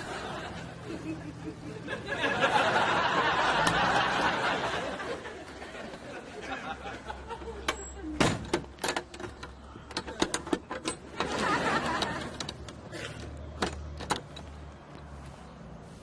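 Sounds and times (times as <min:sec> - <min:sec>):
key and bolt latch rattling: 0:07.7 - 0:11.3, 0:12.3 - 0:14.6.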